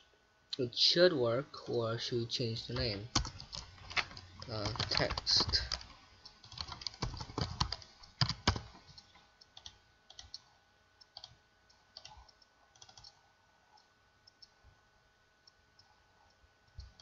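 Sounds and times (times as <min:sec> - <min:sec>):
computer keyboard key presses: 0:06.4 - 0:08.7, 0:12.8 - 0:13.1.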